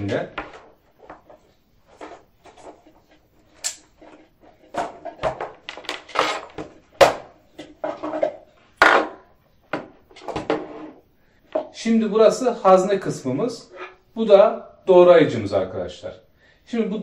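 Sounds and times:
plastic parts clacking and knocking: 0.0 - 10.7.

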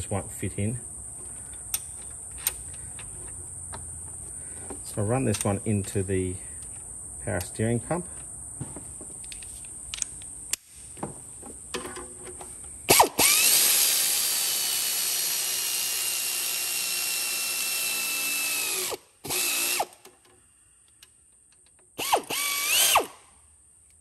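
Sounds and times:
air ratchet whine: 12.9 - 20.4, 22.0 - 23.3
air ratchet clicks: 12.9 - 21.1, 21.9 - 23.2.

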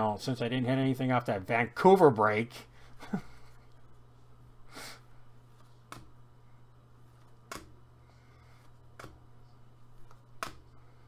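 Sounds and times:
steady low hum: 0.0 - 11.0
soft clicks of cards: 8.6 - 9.2.

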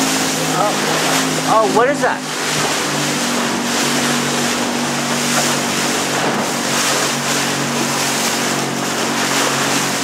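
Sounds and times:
boat motor running: 0.0 - 10.0
water rushing: 0.0 - 10.0.

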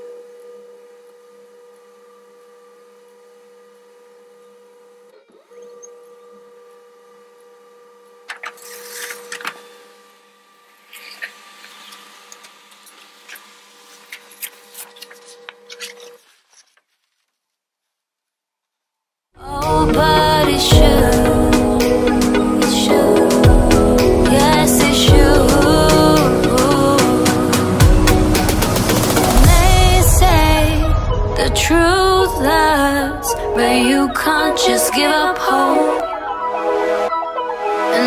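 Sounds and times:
paper feeding clicks and rustling: 8.2 - 9.8, 10.9 - 18.8.

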